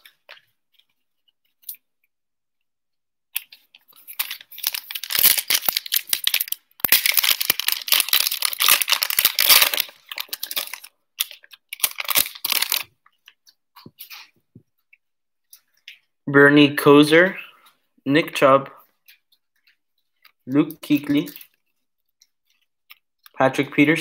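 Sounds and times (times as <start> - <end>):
foil wrapper crackling: 3.4 - 12.9.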